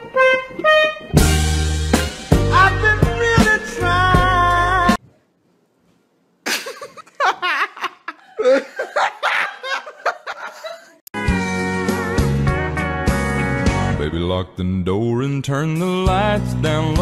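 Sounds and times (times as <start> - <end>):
music: 0.0 - 5.0, 11.2 - 14.6, 15.2 - 17.0
loud laughter: 6.5 - 11.0.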